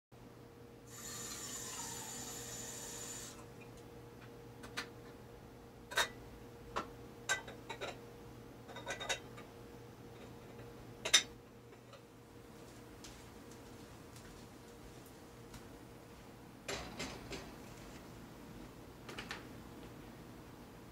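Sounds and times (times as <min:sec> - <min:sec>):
faint steady hum: 0:00.2 - 0:20.9
hiss: 0:00.9 - 0:03.4
kitchen clicks and clinks: 0:08.7 - 0:09.4.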